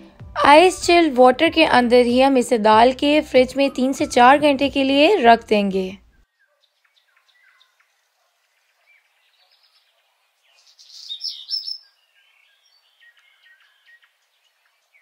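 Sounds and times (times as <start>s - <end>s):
birds chirping and singing: 6.0s - 15.0s.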